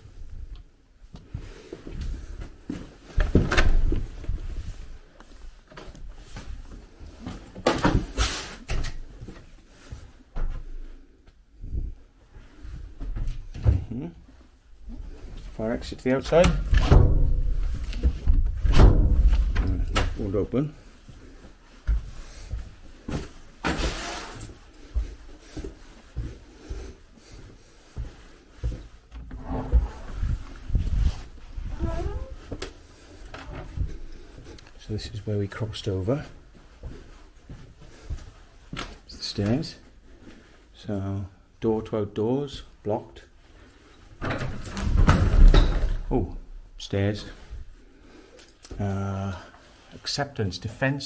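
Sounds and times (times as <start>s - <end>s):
footsteps walking: 0.0s - 7.6s, 20.8s - 23.6s, 24.4s - 40.7s
rustling: 27.2s - 34.9s.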